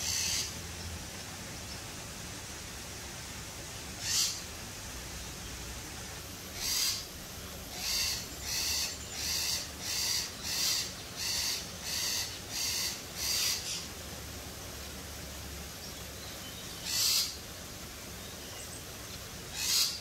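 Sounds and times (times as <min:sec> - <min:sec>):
parrot calling: 0:04.0 - 0:04.4, 0:06.6 - 0:07.0, 0:07.7 - 0:13.8, 0:19.5 - 0:20.0.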